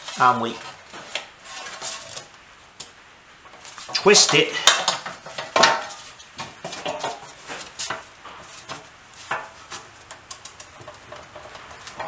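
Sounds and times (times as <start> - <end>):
metal fork scraping sheet metal: 1.0 - 2.3.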